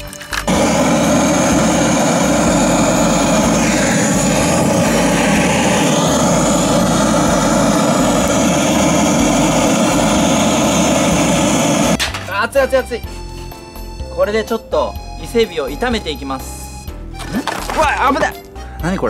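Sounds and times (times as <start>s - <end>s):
gas torch flame roaring: 0.4s - 12.0s.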